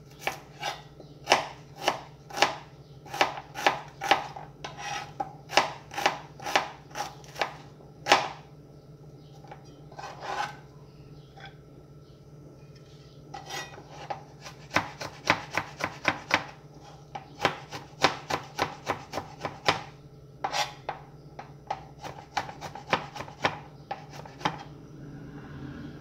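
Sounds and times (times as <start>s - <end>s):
knife chopping on cutting board: 0.1s - 8.4s, 13.4s - 24.7s.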